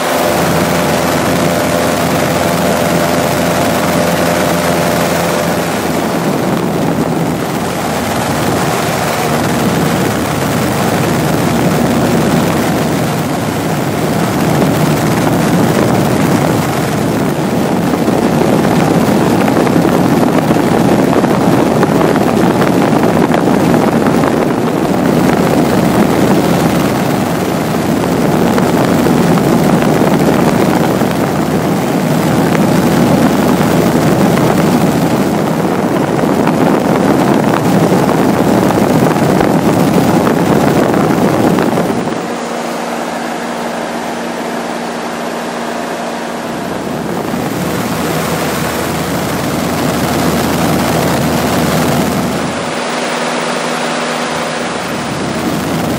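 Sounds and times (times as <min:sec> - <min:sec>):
plane engine and propeller drone: 0:00.0 - 0:55.9
wind noise: 0:00.0 - 0:55.9.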